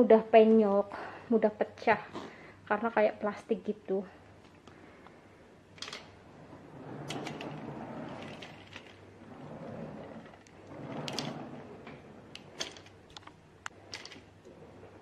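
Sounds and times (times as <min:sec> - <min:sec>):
suitcase parts clicking: 0:05.8 - 0:06.2, 0:07.0 - 0:09.0, 0:10.2 - 0:14.4
suitcase rubbing and scraping: 0:06.2 - 0:13.1.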